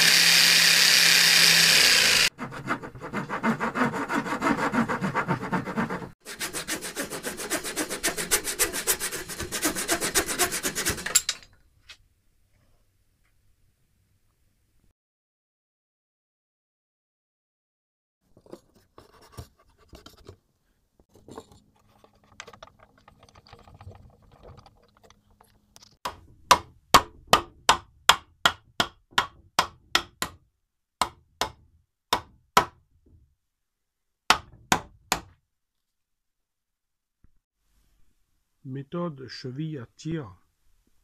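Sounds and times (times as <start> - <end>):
scraping and handling of wood: 18.3 - 26.0.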